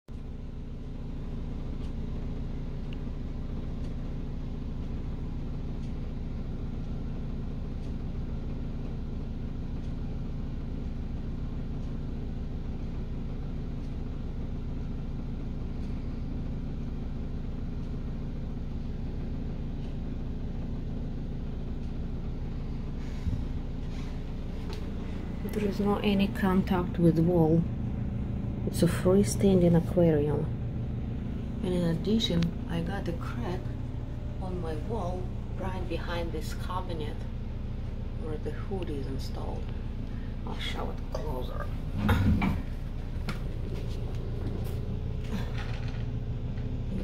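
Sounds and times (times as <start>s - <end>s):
hood fan humming: 0.1s - 47.0s.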